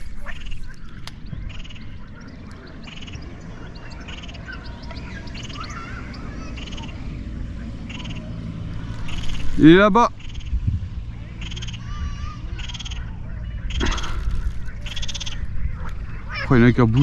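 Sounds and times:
faint bird chirps: 0.0 - 7.2, 7.8 - 9.6
frogs croaking: 0.0 - 17.0.

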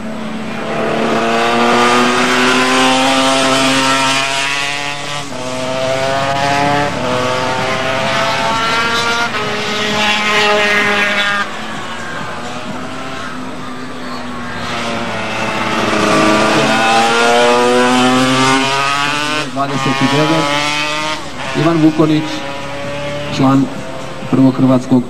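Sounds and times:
motorcycle accelerating through gears: 0.0 - 25.0.

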